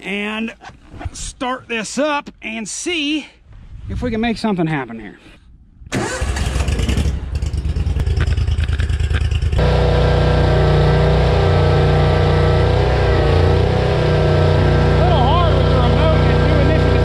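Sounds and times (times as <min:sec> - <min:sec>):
mower engine running: 0:06.0 - 0:17.0.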